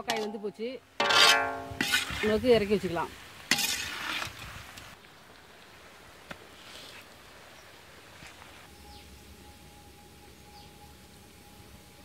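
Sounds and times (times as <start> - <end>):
metal ladle scraping iron pan: 0.0 - 2.4, 3.5 - 4.4
faint outdoor background: 0.0 - 12.0.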